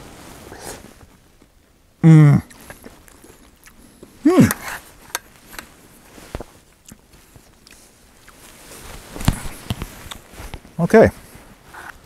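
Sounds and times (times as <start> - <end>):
man saying mm: 2.0 - 2.5.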